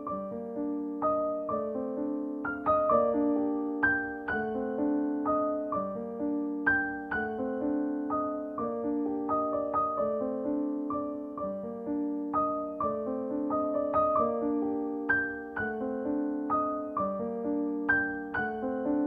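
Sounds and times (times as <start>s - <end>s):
gentle piano melody: 0.0s - 19.0s.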